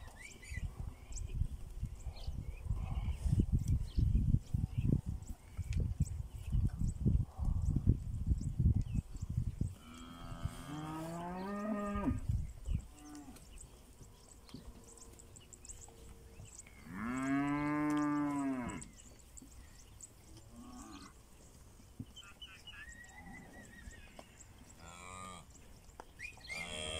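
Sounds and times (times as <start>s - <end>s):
cattle mooing: 16.9s - 18.9s.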